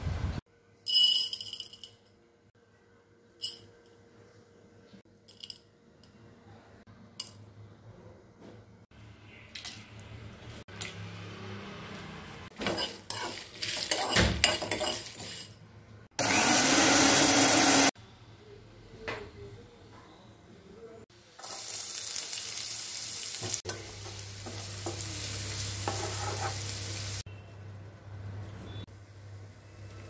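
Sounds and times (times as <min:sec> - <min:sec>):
spices rattling in metal pan: 0:12.6 - 0:15.6, 0:23.5 - 0:27.1.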